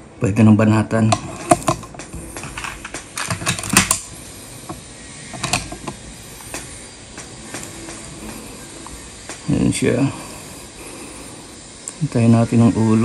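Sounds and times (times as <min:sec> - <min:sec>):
air rifle handling clicks and knocks: 0:01.1 - 0:08.0.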